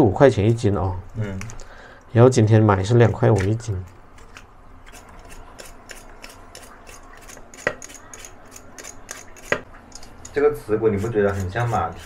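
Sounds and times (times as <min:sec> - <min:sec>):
skin being scraped by hand: 0:04.3 - 0:10.3.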